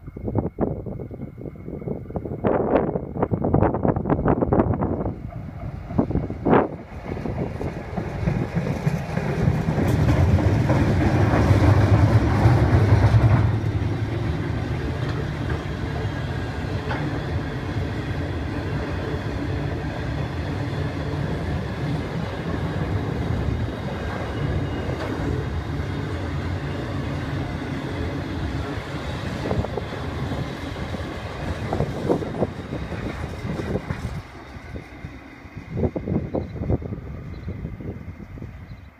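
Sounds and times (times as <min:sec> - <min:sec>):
diesel locomotive engine drone: 0:00.0 - 0:38.9
wagon wheels rumbling on rails: 0:05.4 - 0:34.8.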